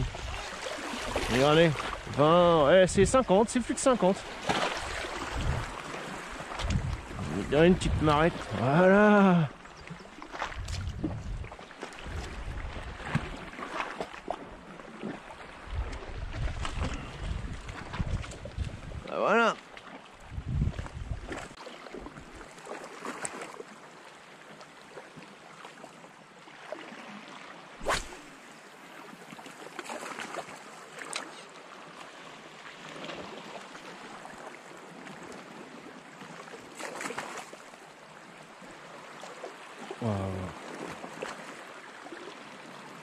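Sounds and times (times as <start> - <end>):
wind on microphone: 0.0 - 0.5, 4.8 - 8.6, 10.5 - 13.4, 15.6 - 19.1, 20.2 - 21.5
shallow seawater washing ashore: 0.0 - 43.0.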